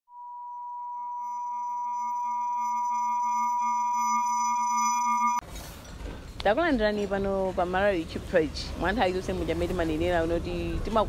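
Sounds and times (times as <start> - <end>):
synthesized steady tones: 0.6 - 5.4.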